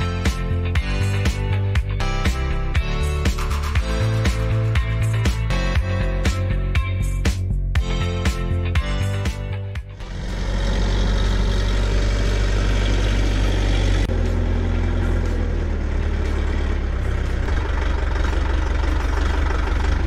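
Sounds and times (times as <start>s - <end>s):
tractor diesel engine running: 8.7s - 20.0s.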